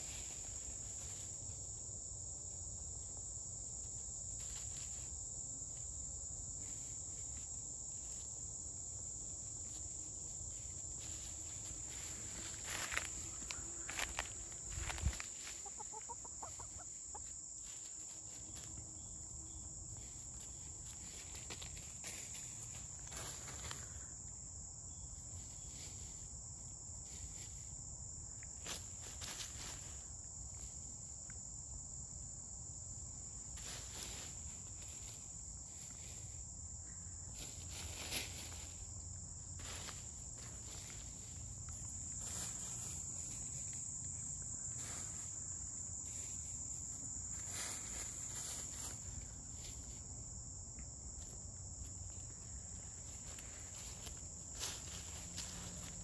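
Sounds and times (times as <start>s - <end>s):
insects buzzing: 0.0s - 56.0s
hens scratching in leaf litter: 10.5s - 18.6s, 37.4s - 38.8s, 47.4s - 50.0s.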